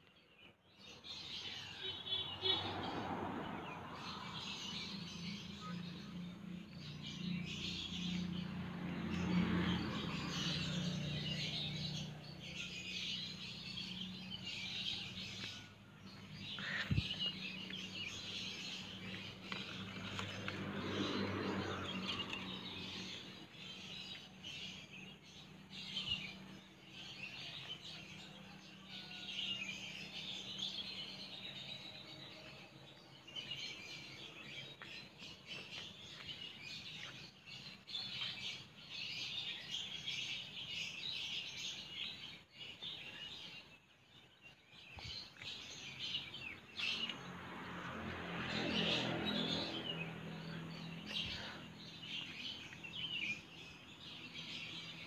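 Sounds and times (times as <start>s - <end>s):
small birds chirping: 0.0s - 55.0s
leaves rustling: 19.0s - 23.2s.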